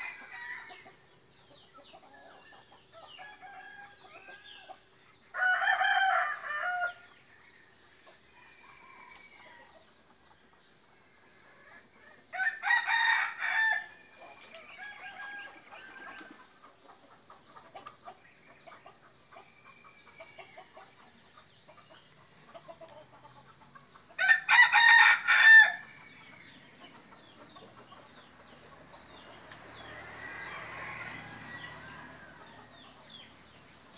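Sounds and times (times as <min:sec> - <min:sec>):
rooster crowing: 0:00.0 - 0:00.9, 0:03.1 - 0:04.7, 0:05.3 - 0:07.1, 0:12.3 - 0:16.4, 0:24.2 - 0:26.0, 0:29.7 - 0:33.0.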